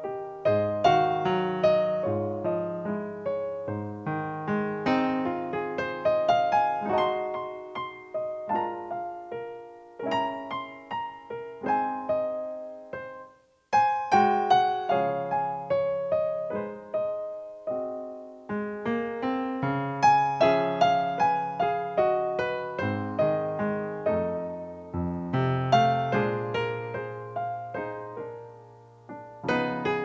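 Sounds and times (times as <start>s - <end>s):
solo piano music: 0.0s - 30.0s.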